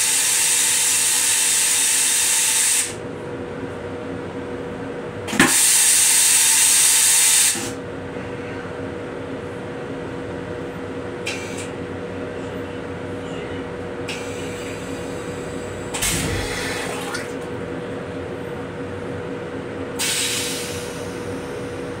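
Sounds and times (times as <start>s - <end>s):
toilet flushing hiss: 0.0s - 3.0s, 5.4s - 7.8s, 14.1s - 17.4s, 20.0s - 21.4s
railcar hum: 6.4s - 22.0s.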